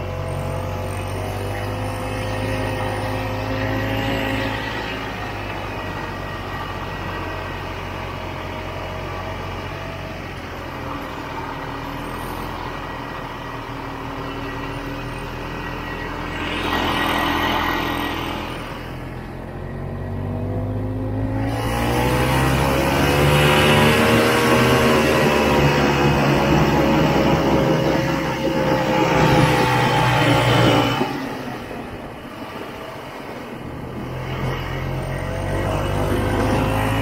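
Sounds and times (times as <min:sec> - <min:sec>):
snowmobile two-stroke engine running: 0:21.4 - 0:31.4.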